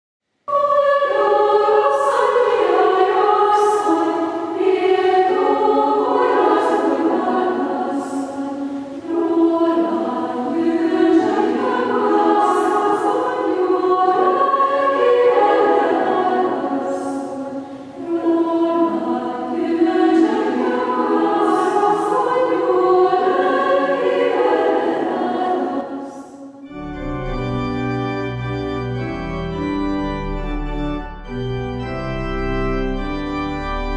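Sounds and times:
choir singing: 0.5s - 27.4s
organ music: 26.6s - 33.9s.

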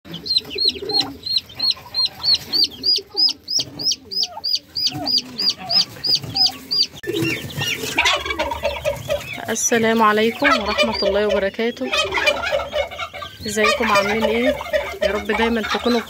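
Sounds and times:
chicks peeping: 0.1s - 16.0s
turkey hen clucking: 0.1s - 16.0s.

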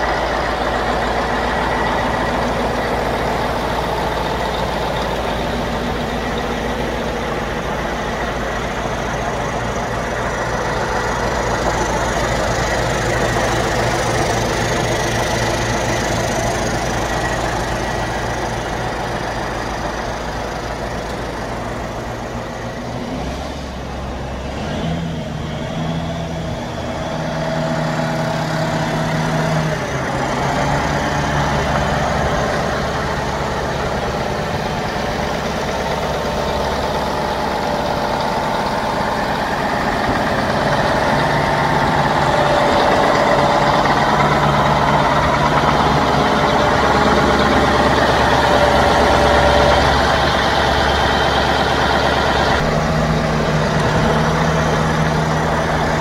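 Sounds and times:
diesel tractor engine idling: 0.0s - 56.0s.

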